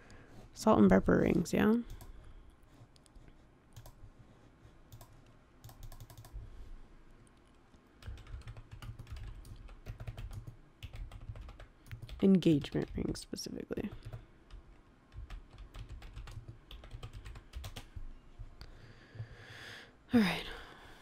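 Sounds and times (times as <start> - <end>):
computer keyboard typing: 1.9 - 2.1, 3.7 - 4.1, 4.9 - 6.4, 8.0 - 18.0.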